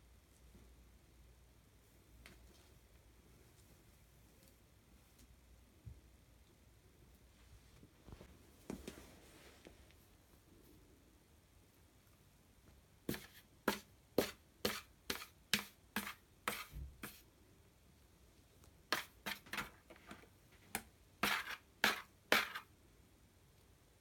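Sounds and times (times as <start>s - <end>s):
cat scratching paper in box: 13.1s - 17.2s, 18.9s - 20.2s, 21.2s - 22.7s.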